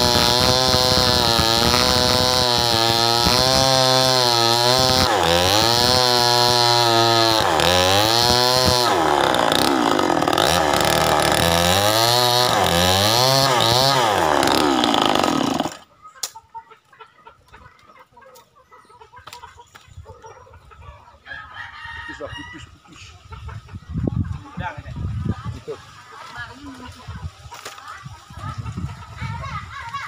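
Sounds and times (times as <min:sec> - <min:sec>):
chainsaw cutting wood: 0:00.0 - 0:15.9.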